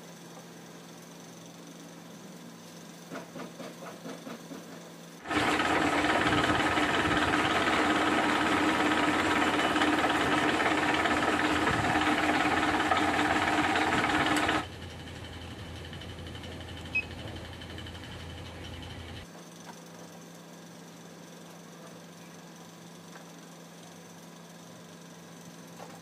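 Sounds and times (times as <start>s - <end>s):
milling machine drilling plastic: 5.3s - 14.7s.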